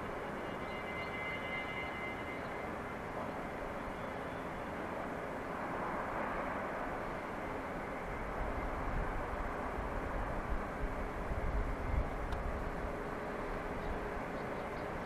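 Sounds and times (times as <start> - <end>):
distant traffic and industrial rumble: 0.0 - 15.0
faint high whine: 0.0 - 15.0.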